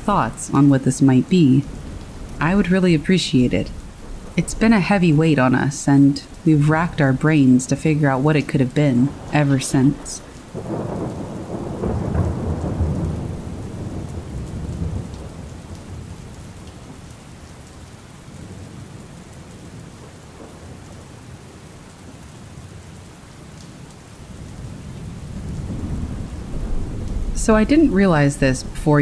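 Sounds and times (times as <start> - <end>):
thunder rumbling: 0.0 - 17.5, 24.1 - 29.0
steady rain: 0.0 - 29.0.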